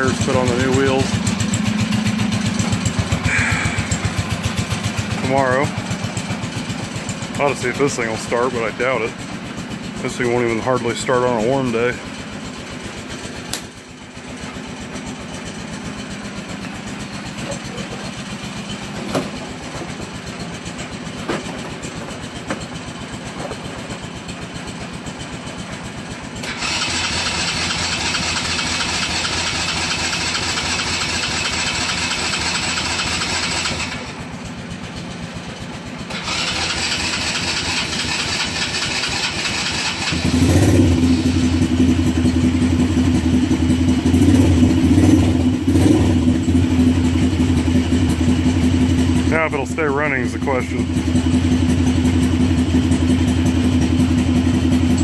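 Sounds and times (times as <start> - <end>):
atv engine running: 0.0 - 55.0
engine idling in background: 0.0 - 55.0
engine cranking on starter: 26.2 - 34.3, 36.0 - 43.4.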